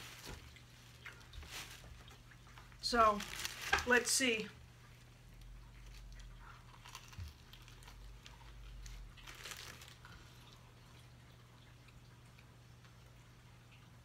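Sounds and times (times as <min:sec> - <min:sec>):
paper wrapper crinkling: 0:00.0 - 0:02.2, 0:02.9 - 0:04.4, 0:05.8 - 0:10.6
quiet chewing: 0:00.1 - 0:02.8, 0:04.6 - 0:14.0.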